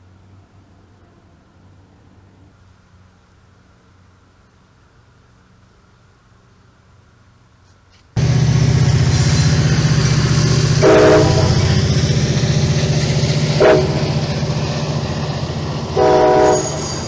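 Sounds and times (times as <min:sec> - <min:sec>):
passenger train passing: 0:00.0 - 0:03.1, 0:08.2 - 0:17.0
train horn blasts: 0:08.2 - 0:12.3, 0:13.4 - 0:14.5, 0:15.8 - 0:17.0.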